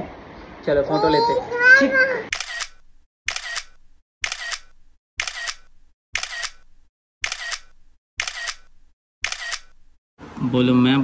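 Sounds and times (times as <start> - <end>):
camera shutter clicking: 2.3 - 9.8.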